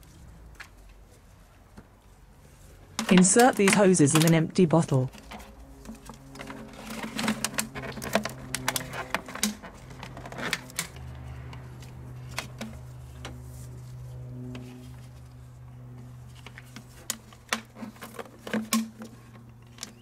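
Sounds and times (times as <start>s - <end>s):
steady low hum: 0.0s - 20.0s
plastic bottles clicking and crinkling: 2.9s - 13.4s, 16.2s - 20.0s.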